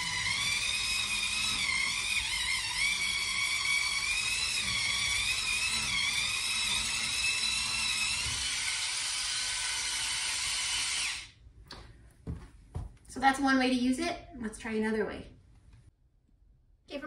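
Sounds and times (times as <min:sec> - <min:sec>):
spin scrubber motor whine: 0:00.0 - 0:11.3.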